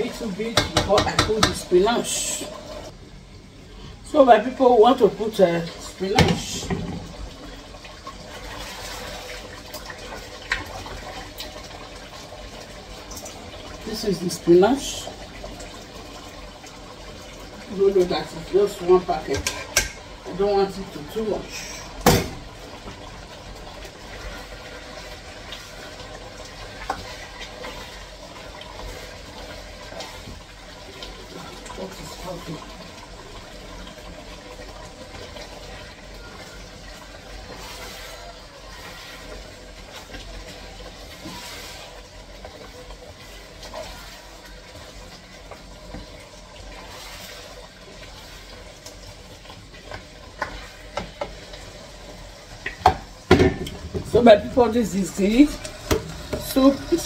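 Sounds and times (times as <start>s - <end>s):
soup bubbling in a pot: 0.0s - 57.0s
spoon knocking against pot: 0.5s - 1.7s.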